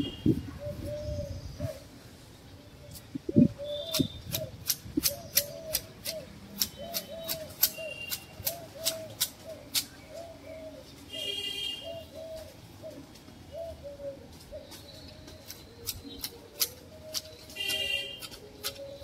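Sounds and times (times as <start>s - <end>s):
hedge shears snipping: 2.9s - 10.0s, 15.4s - 19.0s
bird calling repeated phrase: 3.2s - 9.7s.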